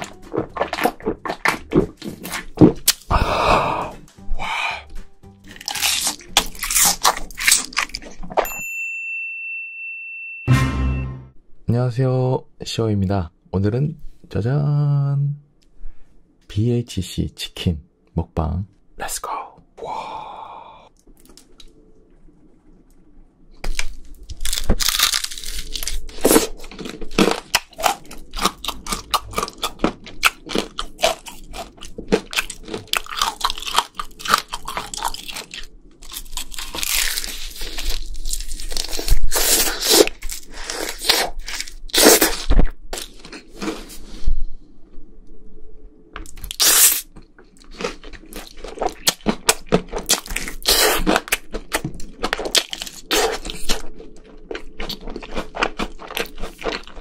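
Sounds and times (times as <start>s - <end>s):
crunching and chewing fried chicken: 0.0s - 3.4s, 5.4s - 8.4s, 23.6s - 44.1s, 46.2s - 57.0s.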